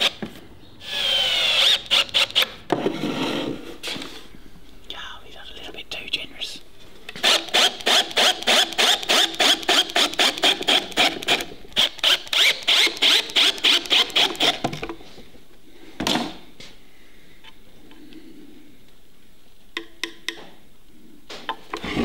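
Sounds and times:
cordless drill boring through wood: 0:00.8 - 0:02.5, 0:07.2 - 0:14.6.

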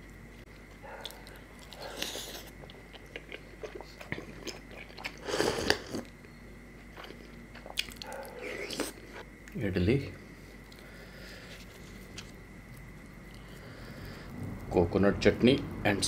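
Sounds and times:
biting and chewing food: 0:00.5 - 0:06.2, 0:06.8 - 0:09.6
slurp from a cup: 0:03.7 - 0:06.1.

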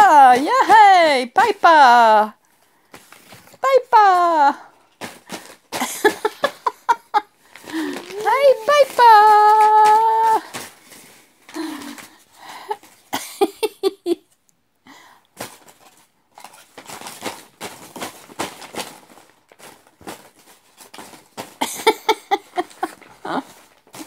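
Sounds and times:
paper rustling and crinkling: 0:02.5 - 0:13.1, 0:15.4 - 0:24.0
baby vocal sounds: 0:07.7 - 0:10.5.

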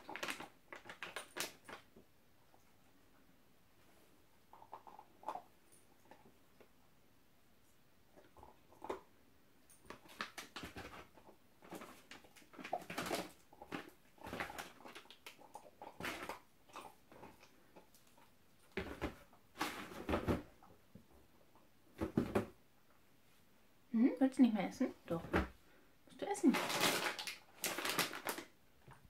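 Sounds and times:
dog chewing crunching: 0:09.8 - 0:19.0.

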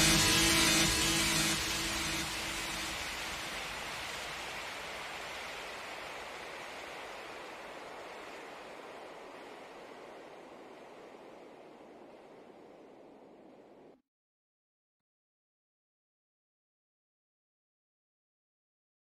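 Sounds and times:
steady rushing noise: 0:00.0 - 0:14.0.

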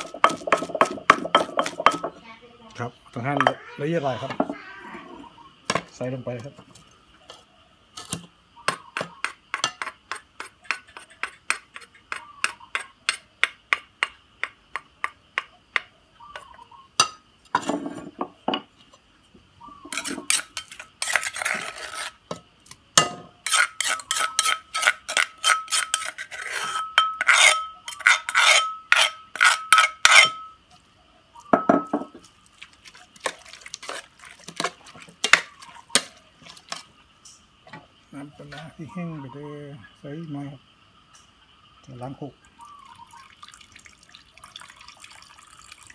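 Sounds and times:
metal spoon clinking in pot: 0:23.0 - 0:30.6.

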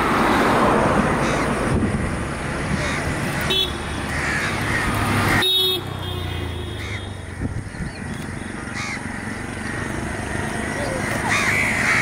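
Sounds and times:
traffic rumble: 0:00.0 - 0:12.0
crows cawing: 0:01.2 - 0:01.6, 0:02.7 - 0:05.5, 0:06.7 - 0:07.6, 0:08.5 - 0:10.0, 0:10.8 - 0:12.0
vehicle horn honk: 0:03.5 - 0:04.0, 0:05.3 - 0:07.2.

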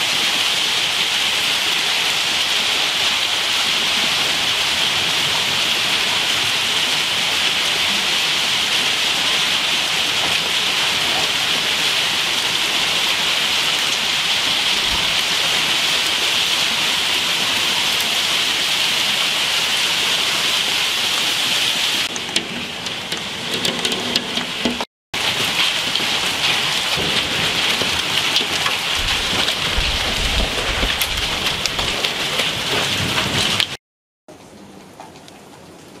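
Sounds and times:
heavy rain and hail pelting paving: 0:00.0 - 0:36.0
thunder rumble: 0:03.7 - 0:17.9, 0:22.0 - 0:33.8
rain patter through window: 0:21.4 - 0:36.0.

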